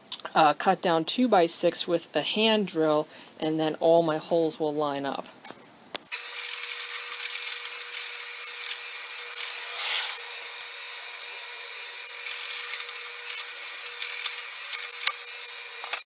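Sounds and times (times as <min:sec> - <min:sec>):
drill bit boring through wood: 0:06.1 - 0:16.0
drill press motor humming: 0:06.1 - 0:16.0
sharp clicks: 0:12.0 - 0:16.0.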